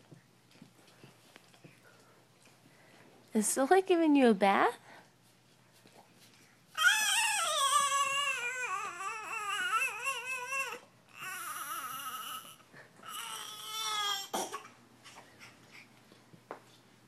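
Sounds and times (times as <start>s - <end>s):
baby fussing cries: 6.8s - 14.8s.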